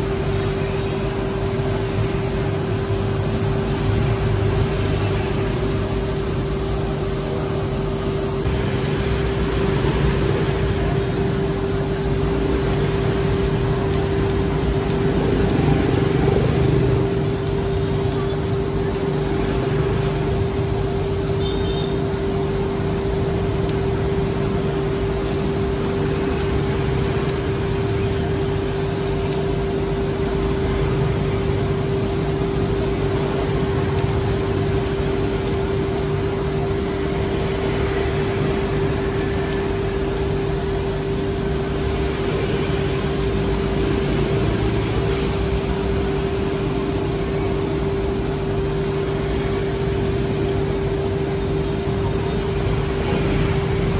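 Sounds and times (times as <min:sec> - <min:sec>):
machine hum: 0:00.0 - 0:53.9.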